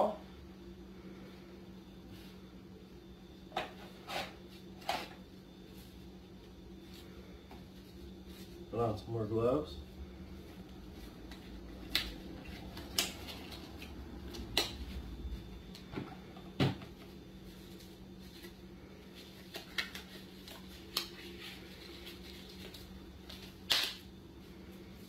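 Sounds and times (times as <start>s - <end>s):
faint steady hum: 0.0s - 25.0s
disposable gloves snapping: 23.3s - 24.0s.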